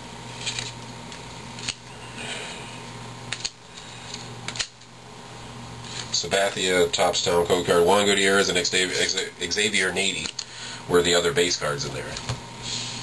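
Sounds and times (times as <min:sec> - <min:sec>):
cards rustling and sliding: 0:00.2 - 0:01.8, 0:03.3 - 0:04.9, 0:05.8 - 0:06.2
cards clicking together: 0:00.4 - 0:01.8, 0:03.3 - 0:04.9.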